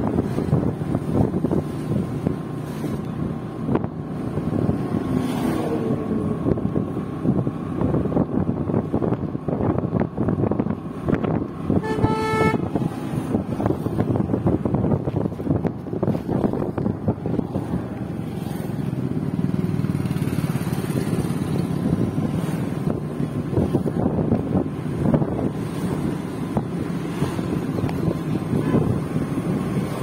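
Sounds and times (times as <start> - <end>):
road traffic: 0.0 - 30.0
wind buffeting microphone: 0.0 - 30.0
vehicle horn honking: 11.7 - 12.8.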